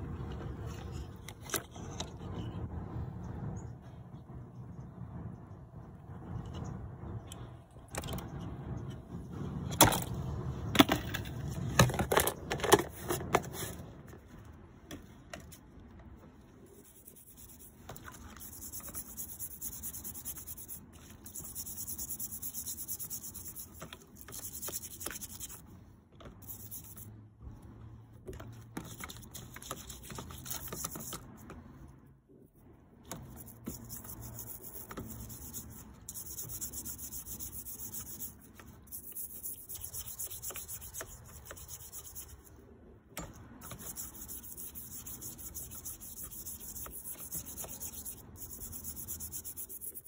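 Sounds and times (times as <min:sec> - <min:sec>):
stiff brush scrubbing metal: 0:16.5 - 0:27.8, 0:28.7 - 0:31.8, 0:32.6 - 0:50.0.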